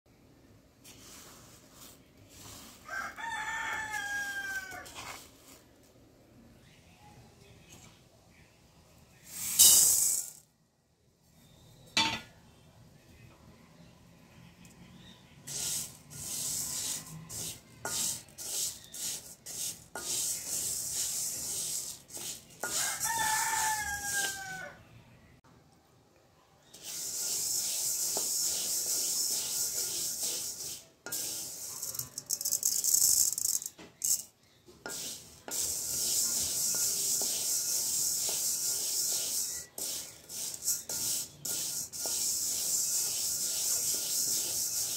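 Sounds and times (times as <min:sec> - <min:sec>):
wooden spatula scraping a pan: 0:00.8 - 0:05.7, 0:15.5 - 0:24.7, 0:26.7 - 0:32.3, 0:34.0 - 0:44.9
rooster crowing: 0:02.8 - 0:05.0, 0:22.7 - 0:24.9.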